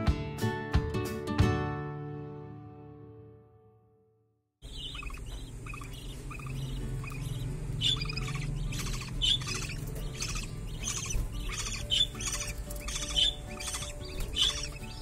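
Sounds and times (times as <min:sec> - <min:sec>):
budgerigar chicks chirping: 0:04.6 - 0:15.0.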